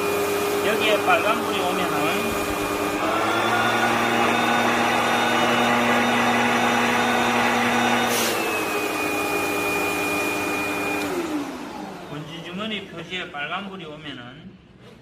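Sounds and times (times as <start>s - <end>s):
vacuum cleaner motor hum: 0.0s - 13.0s.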